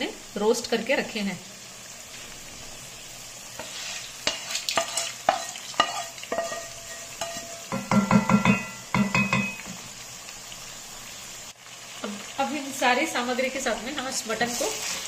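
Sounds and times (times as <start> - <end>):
meat sizzling in a pan: 0.0 - 15.0
loud ringing knocks on pan: 6.4 - 9.8.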